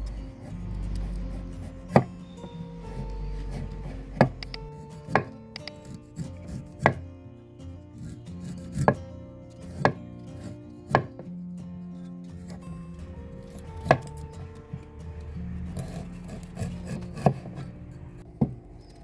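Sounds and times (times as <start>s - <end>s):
cleaver chopping on wooden board: 4.1s - 7.0s, 9.7s - 11.3s.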